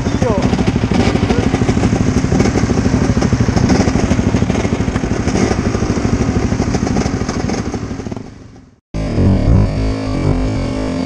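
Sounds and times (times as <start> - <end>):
motorcycles idling: 0.0 - 8.8.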